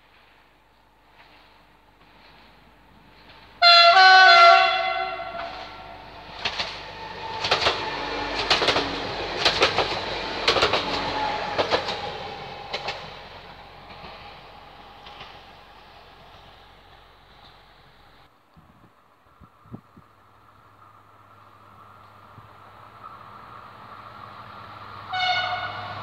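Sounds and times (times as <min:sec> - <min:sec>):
train horn chord: 0:03.6 - 0:06.0, 0:25.1 - 0:26.0
train wheels clattering over rail joints: 0:06.2 - 0:16.6.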